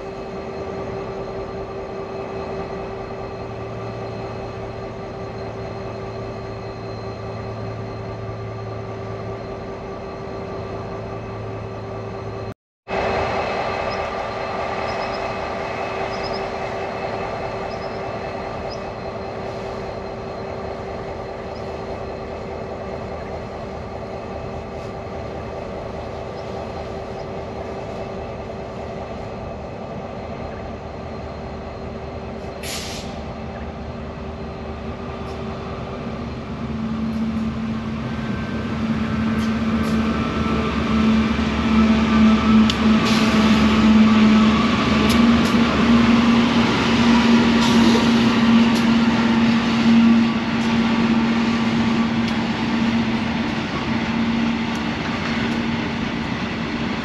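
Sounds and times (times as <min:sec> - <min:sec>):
diesel locomotive engine hum: 0:00.0 - 0:57.0
train wagon noise: 0:00.0 - 0:57.0
brief hiss: 0:32.6 - 0:33.2.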